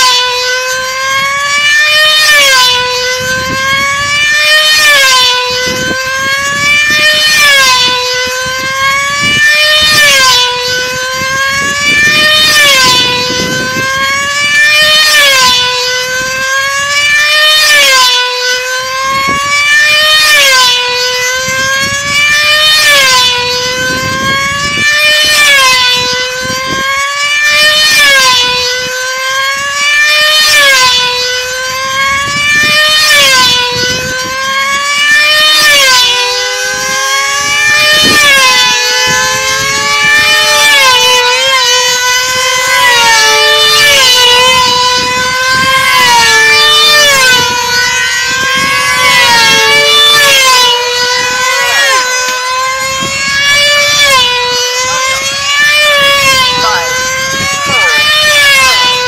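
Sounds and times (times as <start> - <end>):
model aircraft engine buzzing: 0.0 - 59.0.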